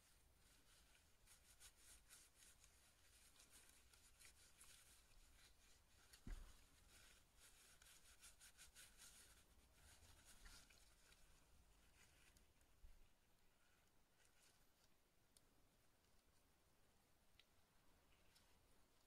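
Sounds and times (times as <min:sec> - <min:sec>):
tissue paper rubbing on plastic: 0:00.0 - 0:12.4.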